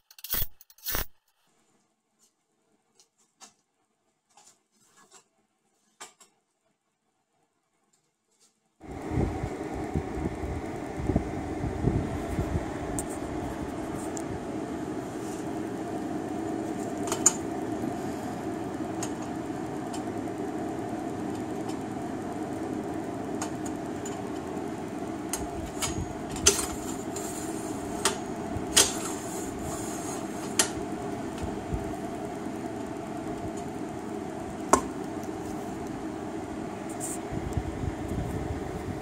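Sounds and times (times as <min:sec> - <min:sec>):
steady background hum: 0:08.8 - 0:39.0.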